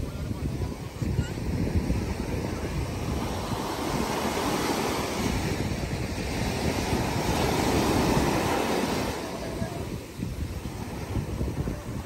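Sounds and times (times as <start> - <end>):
sea surf breaking on beach: 0.0 - 12.0
wind buffeting microphone: 0.0 - 12.0.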